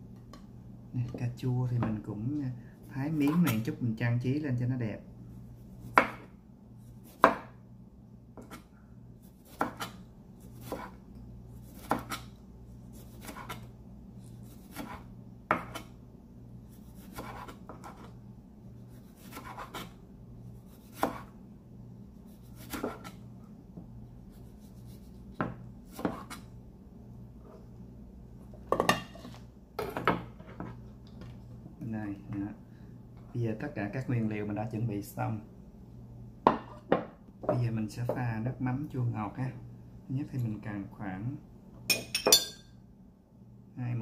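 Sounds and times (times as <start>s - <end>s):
knife chopping on cutting board: 5.9s - 6.3s, 7.0s - 7.6s, 8.4s - 8.7s, 9.4s - 11.0s, 11.6s - 12.3s, 12.9s - 13.6s, 14.4s - 15.9s, 16.8s - 18.1s, 18.9s - 20.0s, 20.7s - 21.3s, 22.4s - 23.2s, 25.3s - 26.5s.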